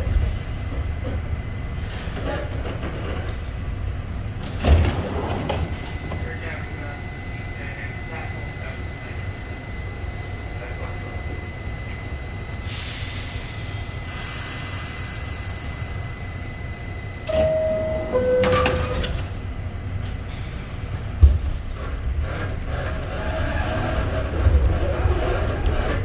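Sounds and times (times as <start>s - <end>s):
train doors thumping shut: 4.4s - 6.2s, 17.2s - 19.4s
air hissing: 12.6s - 16.0s
two-note descending chime: 17.3s - 18.9s.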